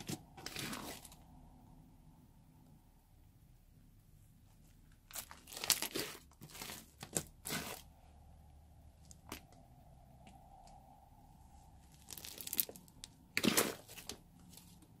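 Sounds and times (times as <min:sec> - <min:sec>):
slime crackling and tearing: 0:05.1 - 0:07.9, 0:11.8 - 0:14.2.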